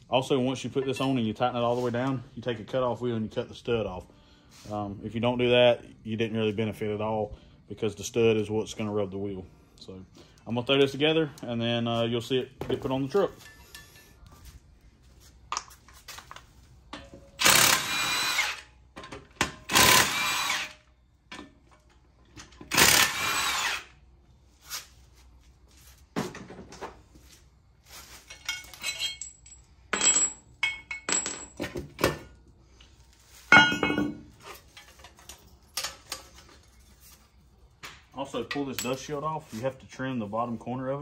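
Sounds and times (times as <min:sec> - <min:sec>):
metal clinks and knocks: 0:13.0 - 0:14.2, 0:28.2 - 0:32.4, 0:33.5 - 0:37.0
impact wrench bursts: 0:17.4 - 0:18.7, 0:19.6 - 0:20.8, 0:22.6 - 0:24.0.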